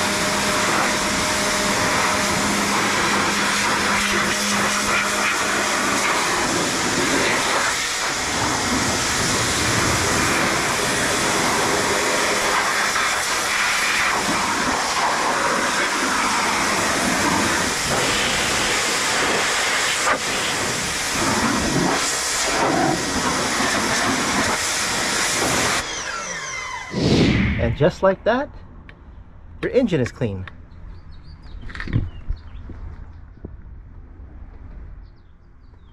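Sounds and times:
pressure washer spraying water: 0.0 - 27.0.

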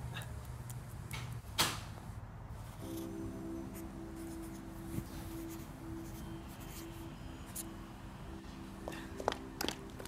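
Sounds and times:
marker scratching on paper: 2.8 - 7.7.

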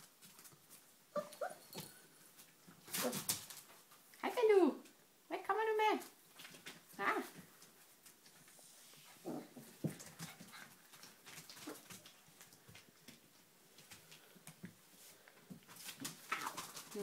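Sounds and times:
puppies whimpering and yipping: 1.2 - 1.8.

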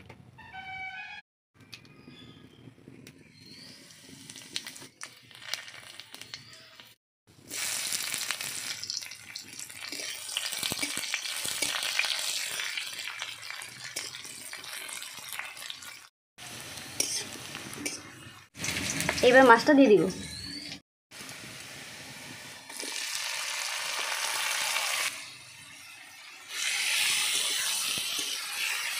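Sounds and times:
seeds crackling in hot oil: 3.1 - 19.7, 21.1 - 28.9
onion sizzling in oil: 3.3 - 19.9, 21.1 - 28.9
metal spatula stirring pan: 16.9 - 18.8.

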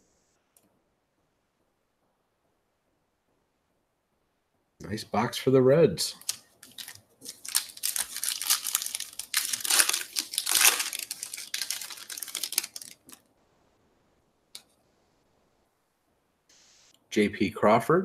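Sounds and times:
wrapper tearing and crinkling: 6.1 - 13.2.

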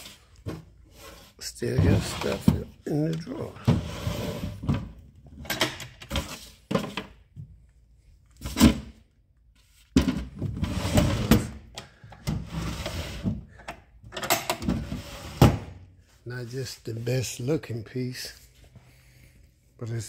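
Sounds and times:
wooden drawers sliding: 0.0 - 5.0, 10.0 - 11.6, 12.2 - 13.5, 14.2 - 15.8.

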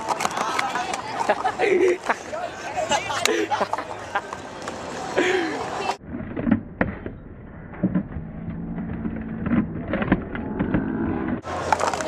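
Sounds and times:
plastic cups clacking: 11.6 - 12.0.

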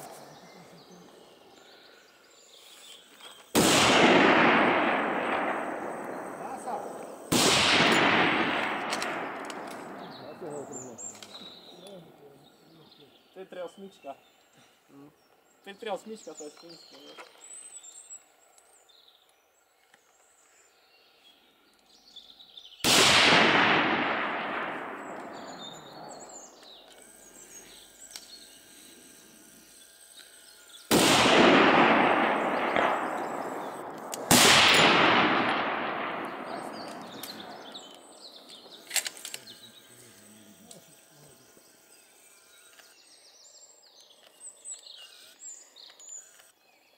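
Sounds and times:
rifle shots echoing: 3.5 - 10.8, 22.8 - 26.6, 30.9 - 39.4.

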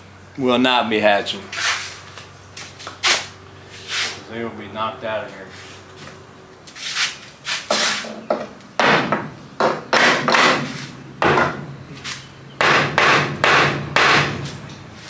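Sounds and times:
hammer striking wooden frame: 7.7 - 11.7, 12.6 - 14.6.

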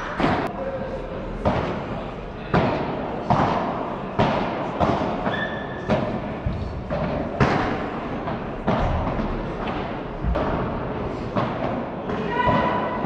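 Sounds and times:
shoe squeak: 5.3 - 5.8.

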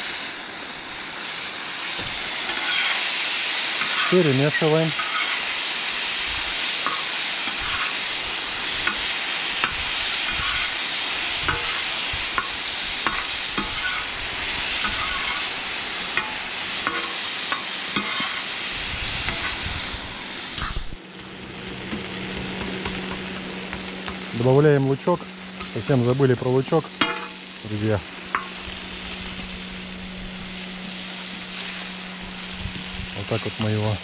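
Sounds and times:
potatoes sizzling in a pan: 0.0 - 34.0
metal spoon scraping a pan: 2.4 - 3.0, 3.8 - 4.2, 4.9 - 5.6, 6.8 - 8.1, 8.8 - 10.8, 11.4 - 11.8, 12.4 - 14.1, 14.8 - 18.6, 19.2 - 19.6, 27.0 - 27.4.

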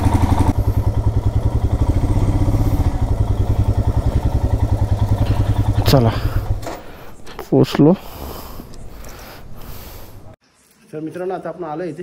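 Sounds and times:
motorcycle engine at low revs: 0.0 - 7.4.

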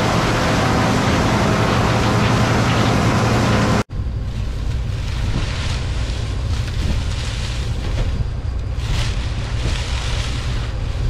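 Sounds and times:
combine harvester engine rumble: 0.0 - 11.0
wind buffeting microphone: 4.4 - 11.0.

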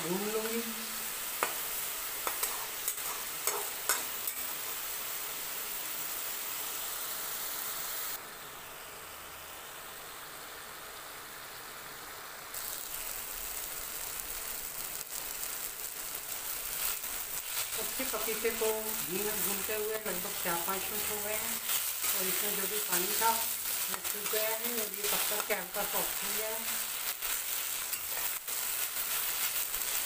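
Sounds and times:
papaya sizzling in a pan: 0.0 - 30.0
metal spatula scraping a pan: 2.2 - 4.4, 27.1 - 28.6.

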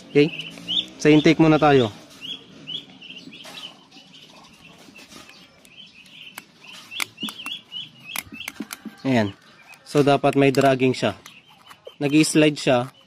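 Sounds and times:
bird chirping: 0.0 - 13.0
metallic tool clicks: 9.7 - 13.0.

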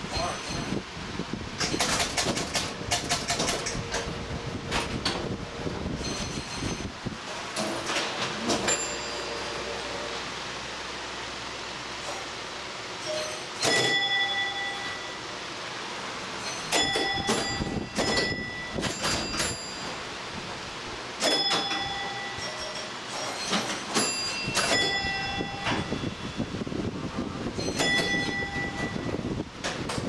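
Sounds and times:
bell ringing: 8.6 - 10.1, 13.0 - 15.3, 16.4 - 20.0, 21.2 - 26.5, 27.6 - 29.2.

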